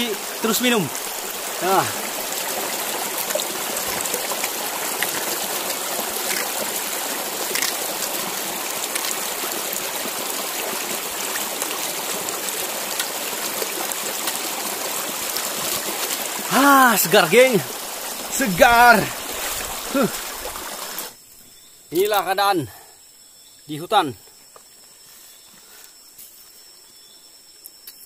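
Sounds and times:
stream running over rocks: 0.0s - 21.2s
water splashing onto face: 0.0s - 21.2s.

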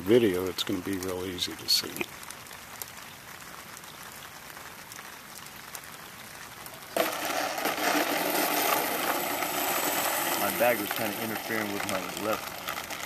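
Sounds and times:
rain hissing: 0.0s - 13.0s
raindrop ticks: 0.0s - 13.0s
model plane motor whine: 7.0s - 13.0s.

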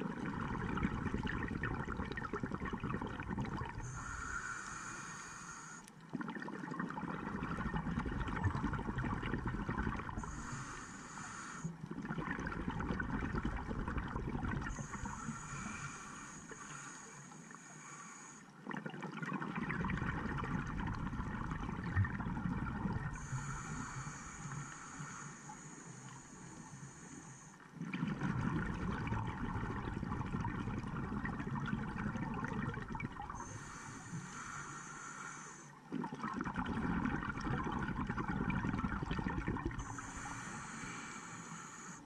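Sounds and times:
gurgling exhaled bubbles: 0.0s - 4.6s, 6.1s - 10.8s, 11.8s - 16.0s, 18.6s - 24.8s, 27.8s - 34.6s, 35.8s - 41.2s
regulator hiss: 3.9s - 5.9s, 10.2s - 11.7s, 14.7s - 18.4s, 23.2s - 27.6s, 33.4s - 35.8s, 39.8s - 42.0s.

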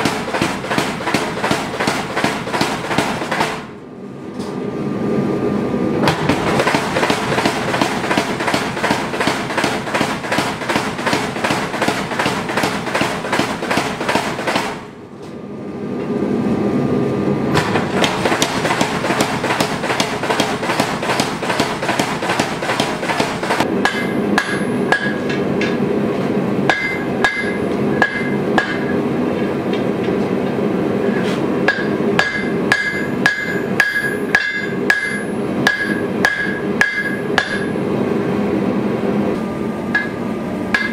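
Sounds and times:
power hammer pounding metal: 0.0s - 3.8s, 6.0s - 15.0s, 17.6s - 25.8s, 26.7s - 29.0s, 31.6s - 37.8s, 39.9s - 40.9s
hand hammer ringing on anvil: 26.7s - 28.9s, 31.7s - 37.7s.

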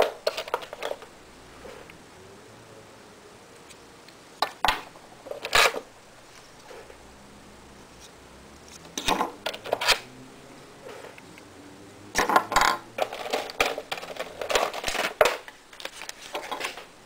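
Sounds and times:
plastic pieces clicking and rattling: 0.0s - 1.1s, 12.2s - 16.9s.

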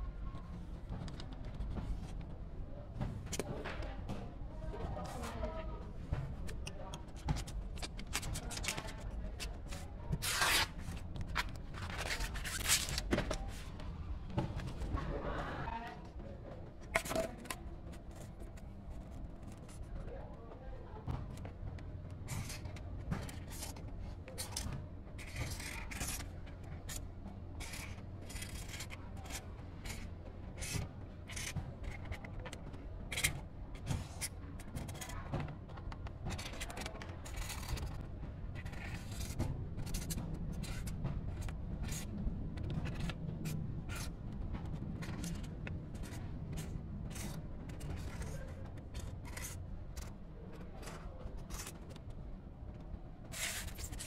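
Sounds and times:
steady low hum: 0.0s - 54.0s
pen scratching on cardboard: 25.2s - 27.0s, 27.6s - 32.4s, 45.0s - 49.6s.

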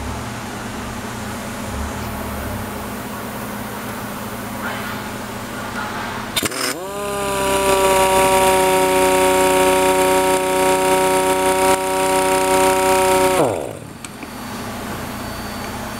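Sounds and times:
exhaust air hissing: 0.0s - 14.2s
air impact wrench whining: 6.4s - 14.3s.

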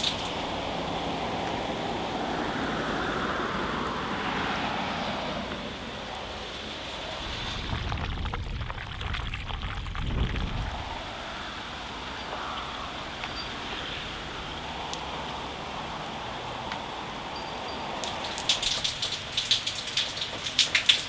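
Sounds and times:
rain falling on water: 0.0s - 2.3s, 5.4s - 21.0s
low rumble: 7.0s - 11.8s.

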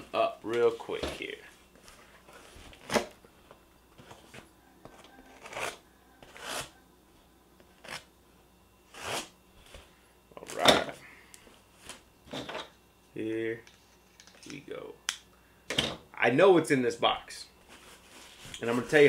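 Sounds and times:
knife cutting packing tape: 5.2s - 6.8s, 8.9s - 9.3s.

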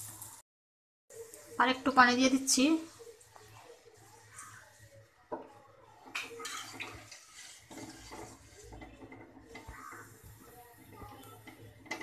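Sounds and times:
metal spatula scraping a pan: 5.9s - 12.0s.

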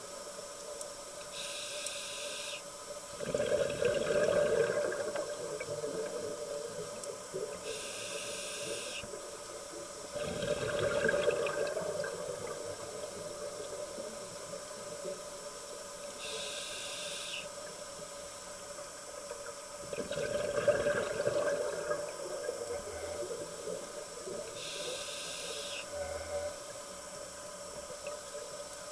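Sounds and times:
regulator inhalation hiss: 1.2s - 2.7s, 6.6s - 10.9s, 16.0s - 17.6s, 23.9s - 26.3s
exhaled bubbles gurgling: 3.1s - 7.8s, 9.0s - 15.2s, 19.8s - 24.8s.

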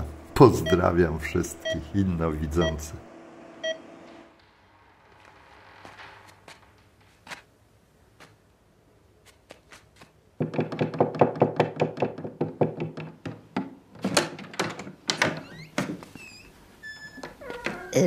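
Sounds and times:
rapid knocking on wooden door: 10.4s - 14.4s.

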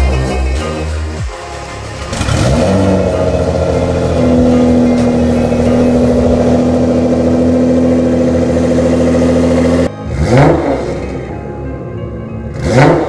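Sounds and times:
car engine idling: 1.3s - 9.9s.

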